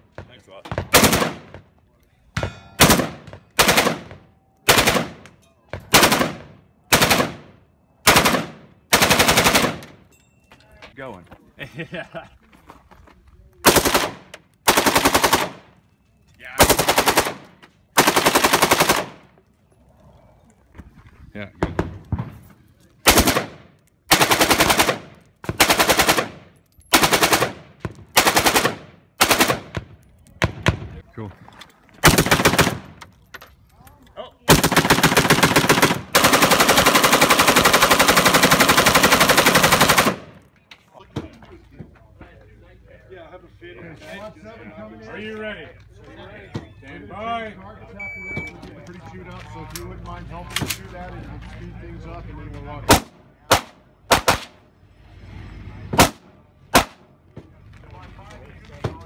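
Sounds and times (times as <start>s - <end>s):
automatic rifle fire bursts: 0.9s - 1.5s, 2.8s - 4.1s, 4.7s - 5.2s, 5.9s - 7.5s, 8.1s - 9.8s, 13.6s - 15.6s, 16.6s - 17.4s, 23.1s - 27.6s, 28.2s - 29.7s, 32.0s - 33.0s, 34.5s - 40.3s, 52.9s - 54.6s.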